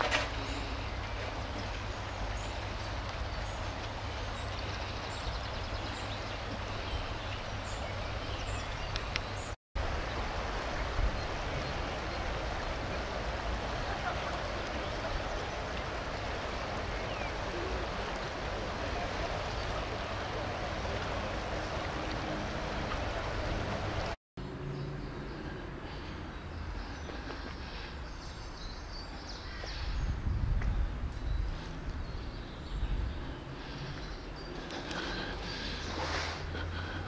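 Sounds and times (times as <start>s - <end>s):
river water rushing: 0.0s - 24.2s
murmur of distant voices: 13.6s - 24.1s.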